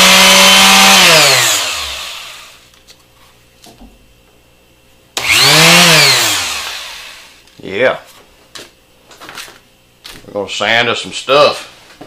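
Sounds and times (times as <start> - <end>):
sander winding down: 0.0 - 2.6, 5.2 - 7.4
sander motor hum: 0.0 - 2.7, 5.2 - 7.4
sander spinning up: 0.0 - 2.7, 5.2 - 7.4.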